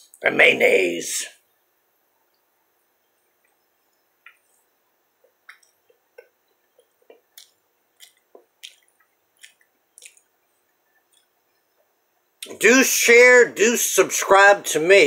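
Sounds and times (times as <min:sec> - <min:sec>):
mouth clicks of chewing: 0:05.5 - 0:10.3.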